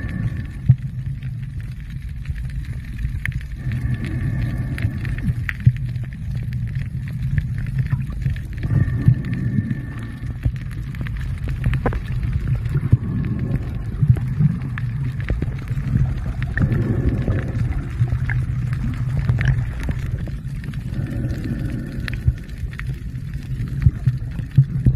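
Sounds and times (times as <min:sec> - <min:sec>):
underwater low rumble: 0:00.0 - 0:24.9.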